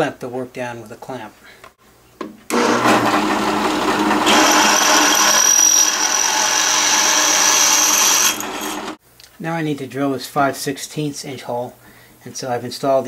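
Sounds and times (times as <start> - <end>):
drill bit whining through metal: 2.5 - 9.0
drill press running: 2.5 - 9.0.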